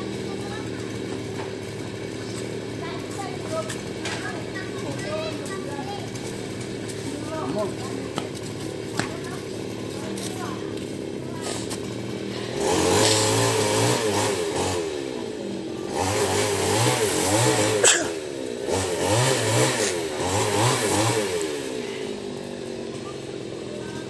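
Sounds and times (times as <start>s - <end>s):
chainsaw revving: 0.0s - 24.0s.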